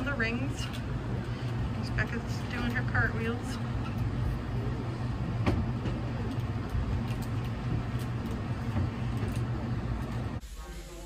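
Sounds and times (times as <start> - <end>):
low rumbling hum of gym: 0.0 - 11.0.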